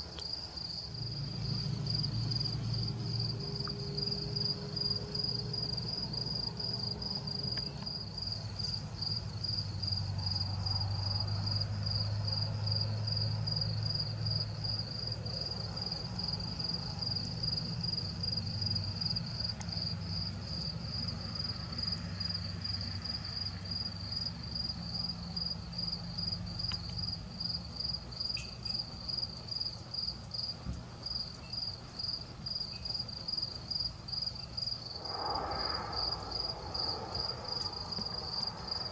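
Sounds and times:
cricket chirping: 0:00.0 - 0:38.9
low rumble: 0:34.8 - 0:38.9.

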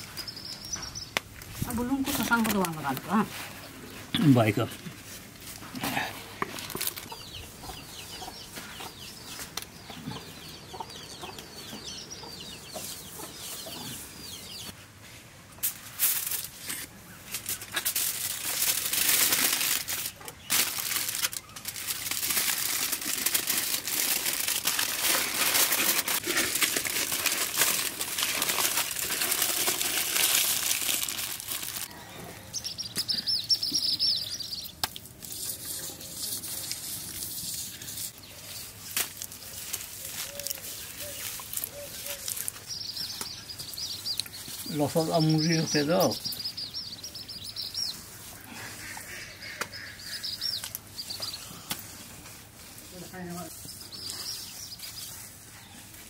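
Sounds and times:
aluminium foil crinkling: 0:01.4 - 0:03.4, 0:06.5 - 0:07.1, 0:15.6 - 0:31.9, 0:34.8 - 0:46.6.

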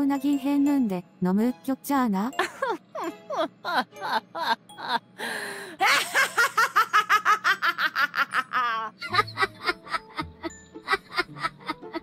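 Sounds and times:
woman cackling laughter: 0:02.4 - 0:05.1, 0:05.8 - 0:12.0.

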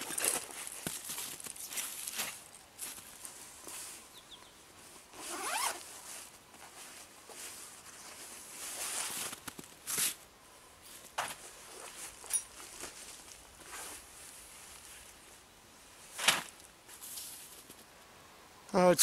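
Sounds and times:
nylon fabric rustling: 0:04.8 - 0:10.1, 0:11.0 - 0:15.3
zipper pulled open: 0:05.1 - 0:05.9.

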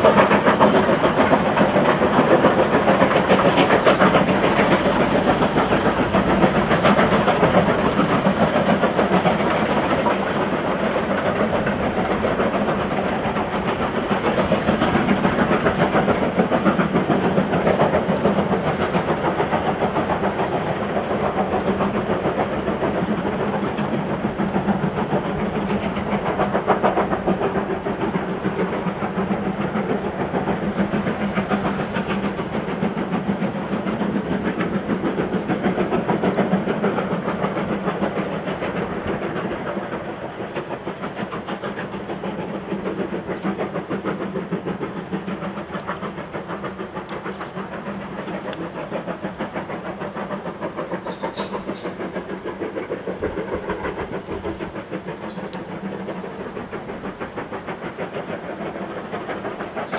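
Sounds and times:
steam locomotive exhaust beats: 0:00.0 - 0:59.9.

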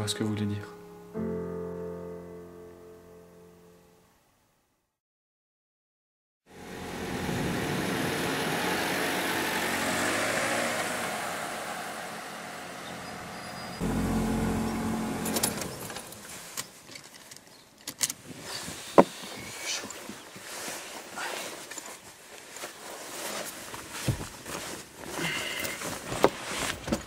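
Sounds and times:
car driving past: 0:06.5 - 0:16.5
low engine rumble: 0:06.5 - 0:16.6.

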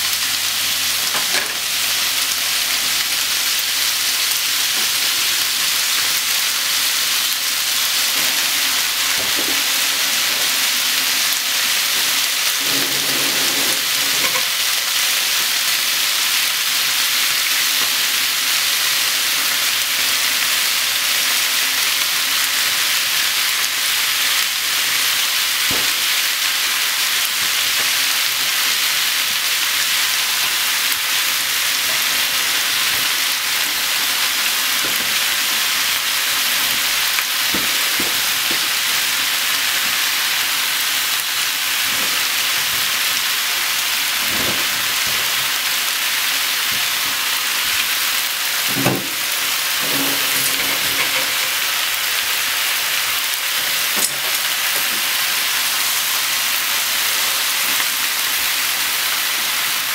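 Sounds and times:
onions sizzling in frying pan: 0:00.0 - 0:59.9
pieces thudding into pan: 0:48.6 - 0:51.6.

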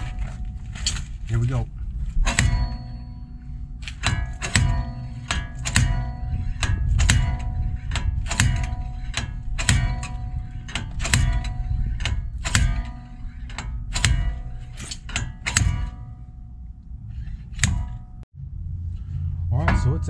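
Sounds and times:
slide hammer metallic clanks: 0:02.2 - 0:18.2.

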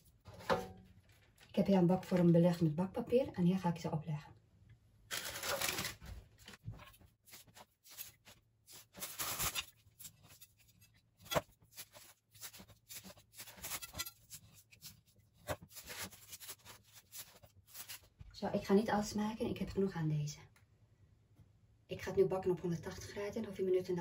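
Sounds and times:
pastry sheets rustling: 0:05.1 - 0:18.4.

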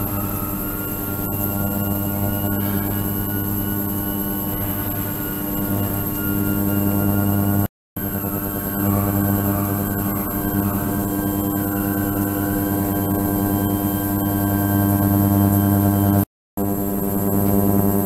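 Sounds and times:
ultrasonic transducer humming: 0:00.0 - 0:16.2.

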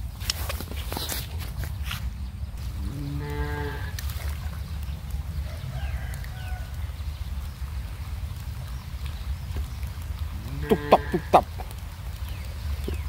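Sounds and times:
steady low rumble: 0:00.0 - 0:13.0
cow mooing: 0:02.8 - 0:04.0, 0:10.4 - 0:11.4.

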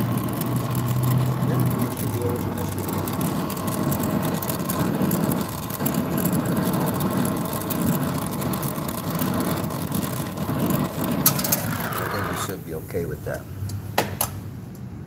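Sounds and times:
torch flame rumbling: 0:00.0 - 0:14.6.

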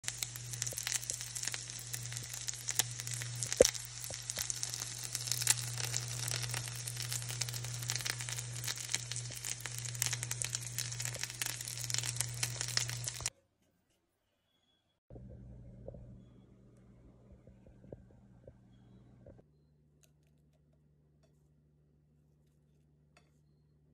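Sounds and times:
food sizzling in oil: 0:00.0 - 0:13.3
low hum: 0:00.0 - 0:13.3, 0:15.1 - 0:19.7.

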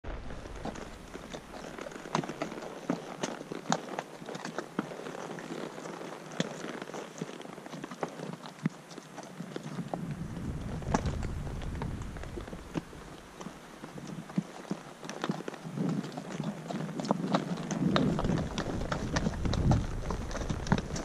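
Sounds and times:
low rumble: 0:00.0 - 0:02.4, 0:09.9 - 0:14.1, 0:18.2 - 0:21.0
horse hooves on rocky trail: 0:00.0 - 0:21.0.

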